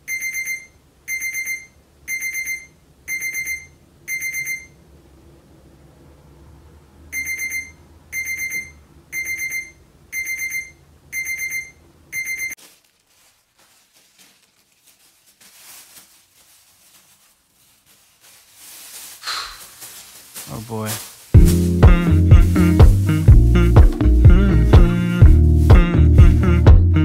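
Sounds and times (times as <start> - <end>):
digital alarm beeping: 0.1 - 4.7, 7.2 - 12.6
plastic bin liner rustling: 12.6 - 22.2.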